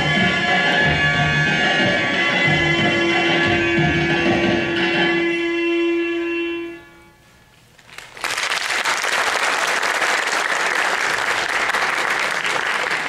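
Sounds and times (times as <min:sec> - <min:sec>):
audience applauding: 0:07.9 - 0:13.0.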